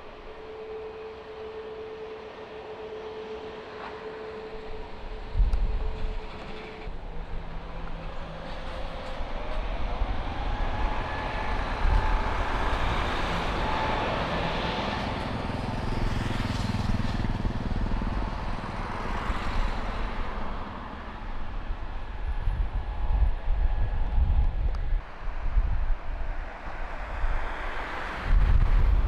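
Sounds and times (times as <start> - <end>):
jet engine roar: 0.0 - 16.8
jet engine whine: 0.0 - 29.0.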